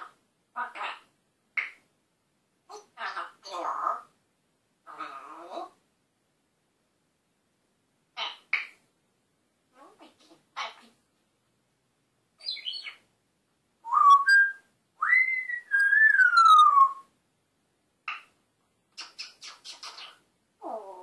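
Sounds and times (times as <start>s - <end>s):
parrot calling and whistling: 12.4s - 13.0s, 13.8s - 17.1s, 19.0s - 21.0s.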